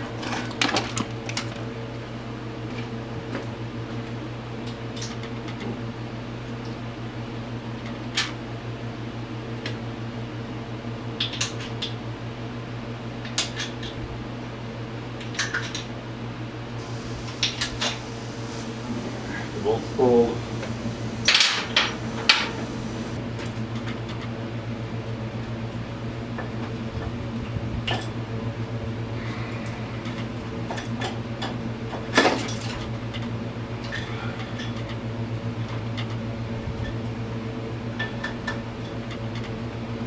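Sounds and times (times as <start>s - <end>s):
low mechanical hum: 0.0s - 40.0s
metal tools clanking: 19.4s - 23.2s.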